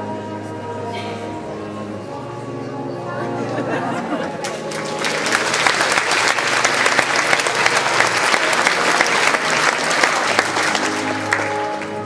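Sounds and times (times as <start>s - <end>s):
quiet music: 0.0s - 12.0s
large audience applauding: 4.4s - 12.0s.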